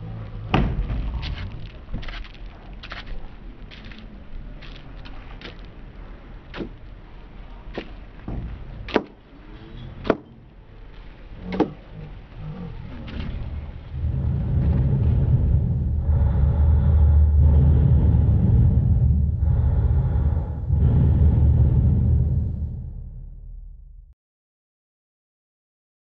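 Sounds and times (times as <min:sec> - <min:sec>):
loud low rumble: 0:11.3 - 0:24.2.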